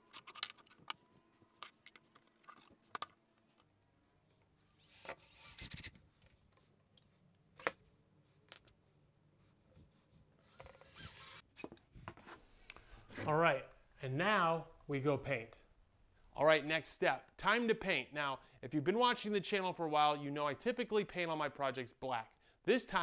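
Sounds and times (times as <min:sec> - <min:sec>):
cordless drill driving screws: 0:10.4 - 0:11.4.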